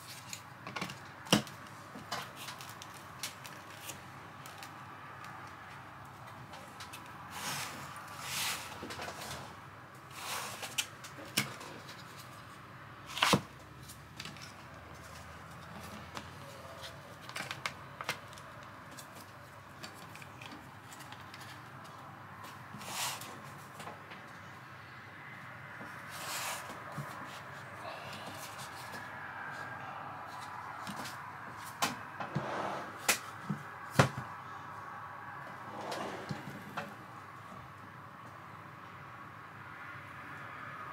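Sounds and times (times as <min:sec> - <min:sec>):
soft rubbing and sliding: 0:35.6 - 0:36.8.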